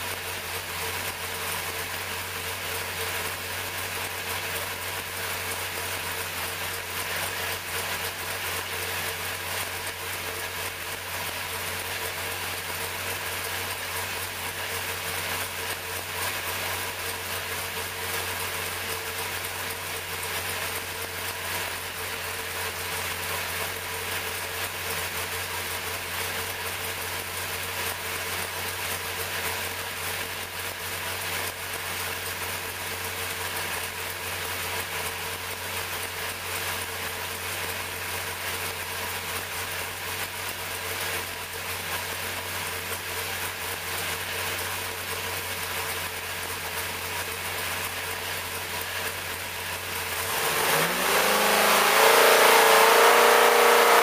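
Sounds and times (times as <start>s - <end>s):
racing engine idling: 0.0s - 54.0s.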